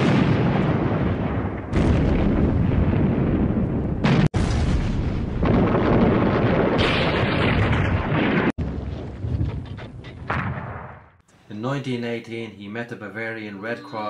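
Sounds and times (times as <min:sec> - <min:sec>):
artillery explosions rumbling: 0:00.0 - 0:11.2.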